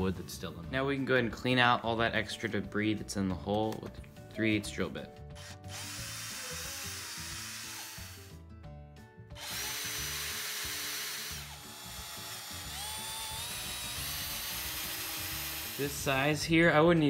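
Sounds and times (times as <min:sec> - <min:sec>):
cordless drill motor whining: 0:05.4 - 0:08.4, 0:09.4 - 0:16.1.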